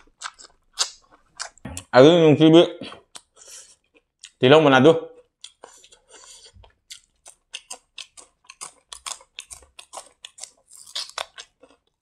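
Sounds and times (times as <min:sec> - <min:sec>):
wet chewing clicks: 0:00.0 - 0:01.9, 0:05.2 - 0:12.0
crisp bite: 0:07.3 - 0:11.8.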